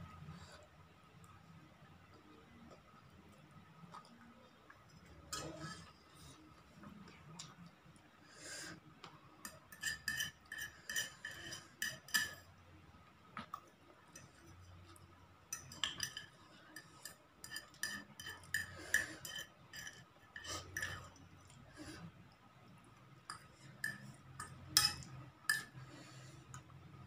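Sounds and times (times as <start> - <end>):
fork clinking on a plate: 23.3 - 25.8.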